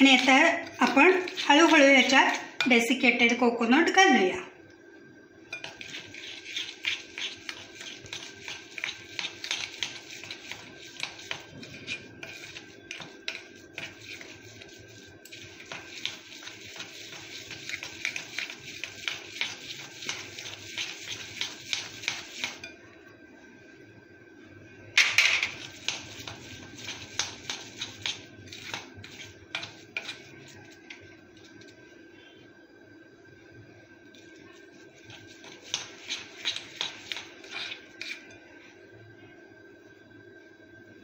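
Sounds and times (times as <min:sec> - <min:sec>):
spoon scraping in glass bowl: 0:00.0 - 0:03.1, 0:05.5 - 0:22.8, 0:25.0 - 0:31.8, 0:34.2 - 0:38.6.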